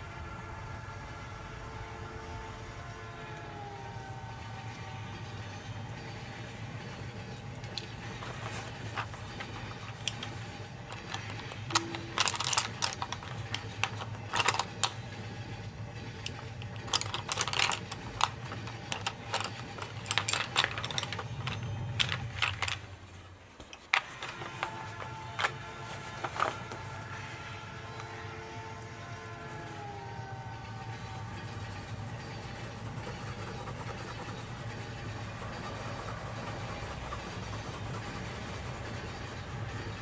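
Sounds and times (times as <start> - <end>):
pencils clicking and rattling: 6.0 - 27.3.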